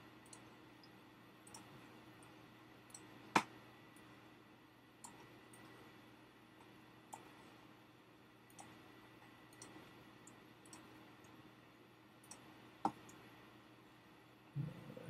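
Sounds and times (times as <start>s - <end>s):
faint steady hum: 0.0s - 15.0s
computer mouse clicks: 0.2s - 4.1s, 5.0s - 5.8s, 7.1s - 7.5s, 8.5s - 8.8s, 9.5s - 11.4s, 12.2s - 13.2s.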